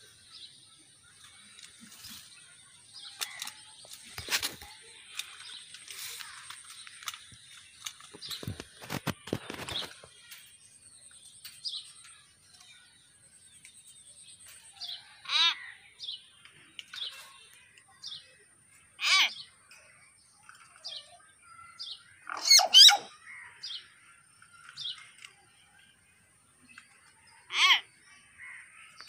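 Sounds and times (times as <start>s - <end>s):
birds chirping: 0.0s - 29.0s
bird calls with falling pitch: 14.5s - 16.1s, 19.0s - 19.6s, 20.5s - 25.8s, 26.7s - 29.0s.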